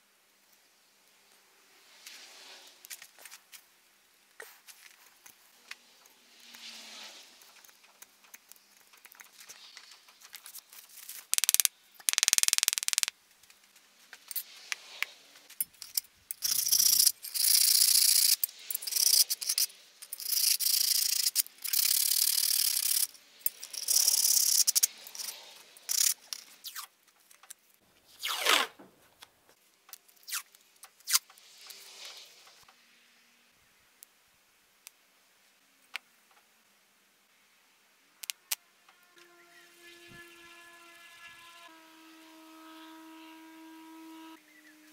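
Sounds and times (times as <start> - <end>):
hissy rasping strokes: 1.6 - 3.6, 4.4 - 11.3, 13.8 - 26.9, 30.2 - 32.7
scraping and rubbing: 4.4 - 27.4.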